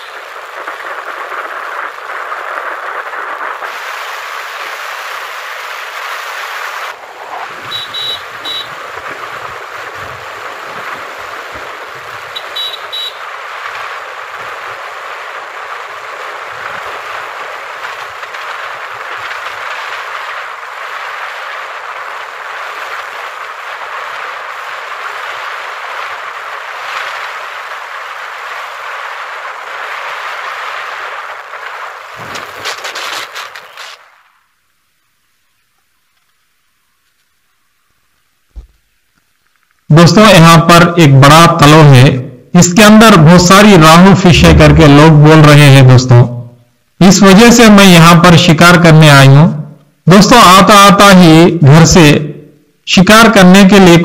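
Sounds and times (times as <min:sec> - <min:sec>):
rushing wind and road noise: 0:00.0 - 0:34.5, 0:39.9 - 0:52.6.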